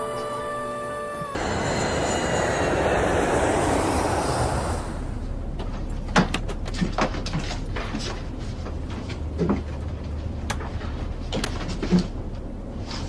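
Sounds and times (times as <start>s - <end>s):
low cabin drone: 0.0s - 13.0s
jet airliner passing overhead: 1.3s - 5.8s.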